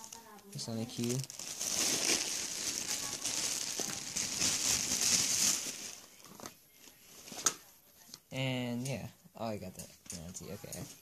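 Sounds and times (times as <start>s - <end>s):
packaging crinkling: 0.0s - 7.4s.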